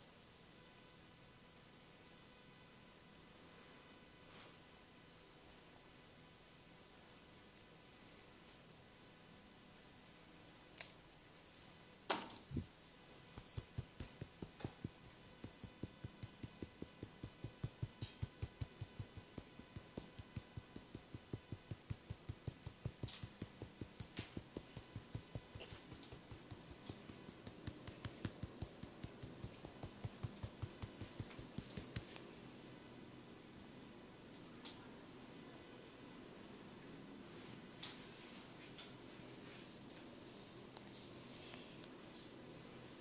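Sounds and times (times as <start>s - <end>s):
massage tapping thumps: 13.3s - 32.2s.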